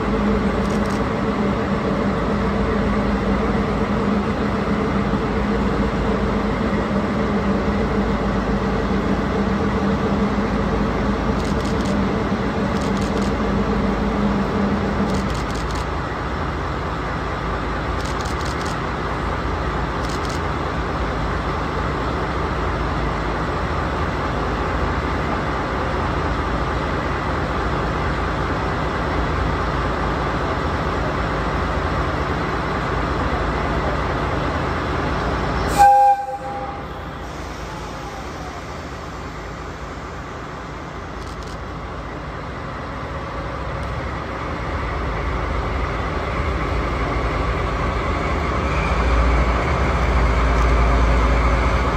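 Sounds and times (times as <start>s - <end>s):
diesel locomotive engine running: 0.0s - 51.9s
locomotive horn blast: 35.7s - 37.4s.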